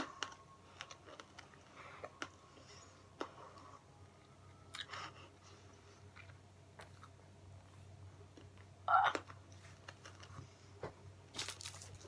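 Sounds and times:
low steady hum: 0:00.0 - 0:12.0
sucking and chewing a sweet: 0:04.5 - 0:10.4.

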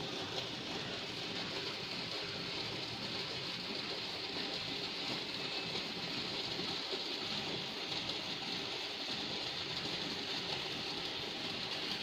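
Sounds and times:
water running from hose: 0:00.0 - 0:12.0.

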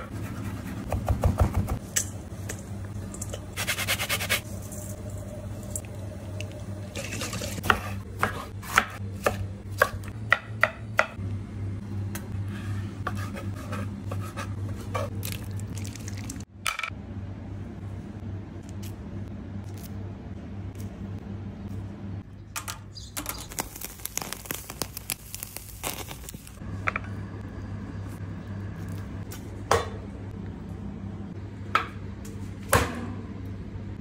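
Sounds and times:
steady low hum: 0:00.0 - 0:34.0
food sizzling over charcoal: 0:23.4 - 0:26.6.

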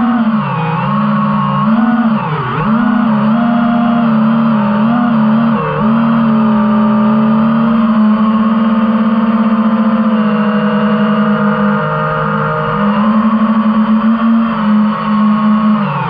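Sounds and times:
drone propellers humming: 0:00.0 - 0:16.0.

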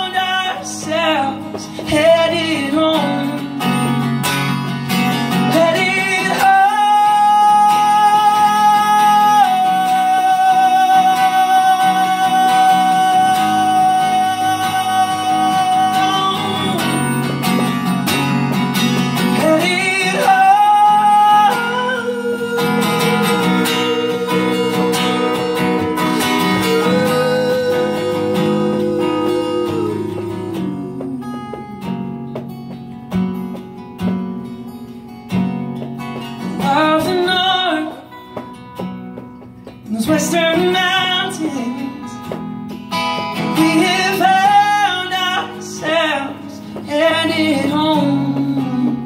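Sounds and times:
strummed acoustic guitar: 0:00.0 - 0:49.0
man singing long held notes: 0:05.6 - 0:17.4, 0:19.3 - 0:31.9.

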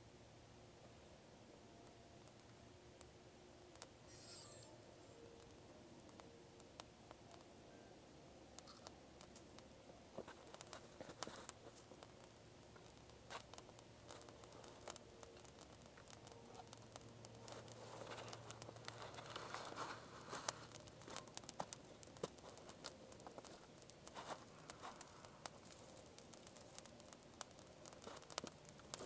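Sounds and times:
twig fire crackling and popping: 0:00.9 - 0:07.6, 0:08.5 - 0:29.0
dry twigs rustling: 0:08.6 - 0:29.0.

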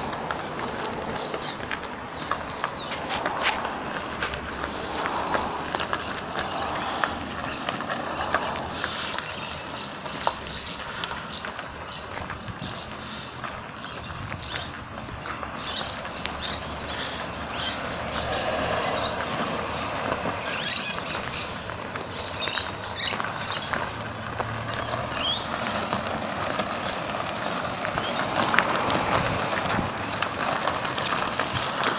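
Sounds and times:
scooter wheels on gravel: 0:00.0 - 0:31.9
high chirps and squeaks: 0:20.4 - 0:24.0.

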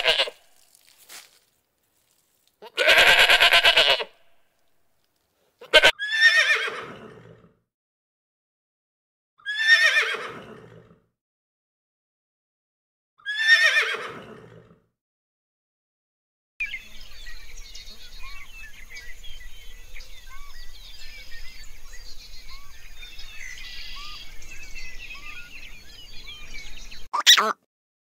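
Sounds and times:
goat bleating: 0:00.0 - 0:00.4, 0:02.6 - 0:04.1, 0:05.6 - 0:06.0, 0:27.2 - 0:27.6
horse whinnying: 0:00.0 - 0:00.4, 0:02.6 - 0:04.1, 0:05.6 - 0:07.5, 0:09.4 - 0:11.0, 0:13.2 - 0:14.7.

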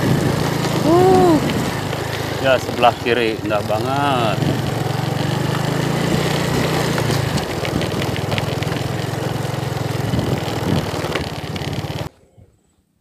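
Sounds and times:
knocks and rattles from riding: 0:00.0 - 0:12.1
motorcycle engine running: 0:00.0 - 0:12.1.

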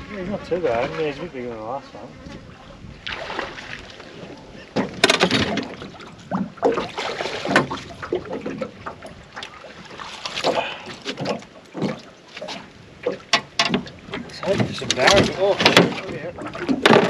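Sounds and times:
fish splashing at surface: 0:03.0 - 0:04.2.

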